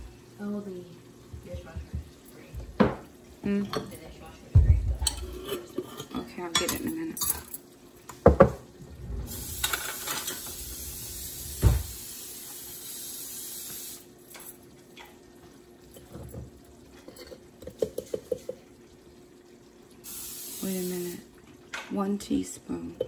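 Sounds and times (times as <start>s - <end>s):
knock on countertop: 1.4s - 3.1s, 4.5s - 5.0s, 8.2s - 8.6s, 11.6s - 11.9s
steady hiss: 8.9s - 14.6s, 20.0s - 21.3s
thump: 11.6s - 12.0s.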